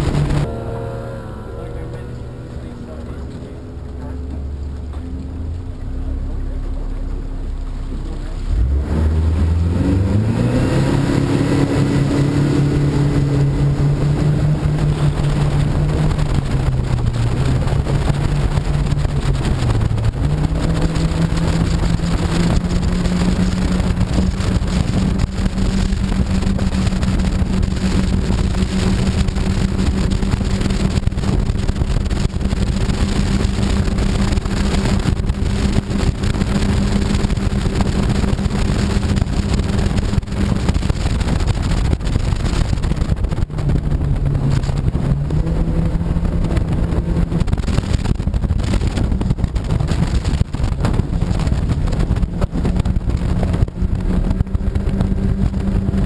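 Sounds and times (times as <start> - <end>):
rushing wind: 0.0 - 7.6, 8.5 - 56.0
outboard motor revving: 0.0 - 56.0.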